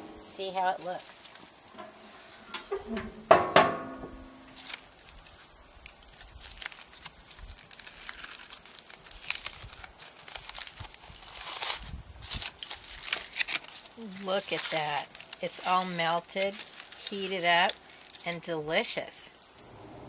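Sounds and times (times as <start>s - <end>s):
aluminium foil crinkling: 0.4s - 1.8s, 4.4s - 19.6s
metal grill lid banging shut: 1.8s - 4.4s.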